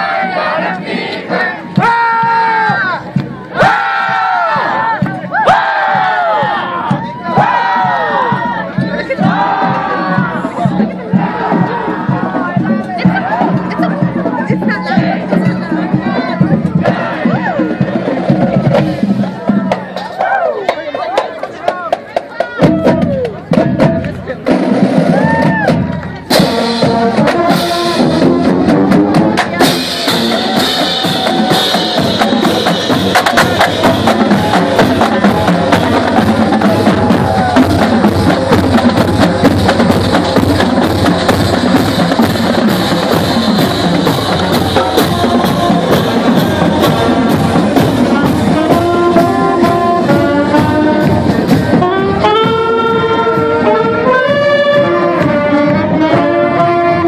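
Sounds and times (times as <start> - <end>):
drums beating: 0.0 - 57.0
saxophones: 41.5 - 57.0.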